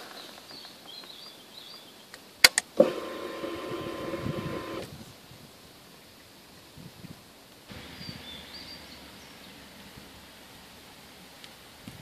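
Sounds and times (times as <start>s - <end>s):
ignition switch clicks: 2.5s - 4.9s
electric fuel pump whirring: 2.8s - 4.9s.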